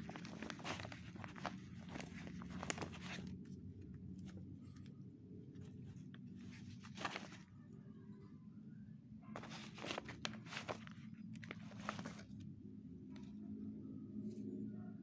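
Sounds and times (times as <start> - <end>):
banana leaf crackling and rustling: 0.0 - 3.4, 6.5 - 7.4, 9.4 - 12.4
sheet crinkling: 0.0 - 3.5, 5.7 - 7.5, 9.4 - 12.4.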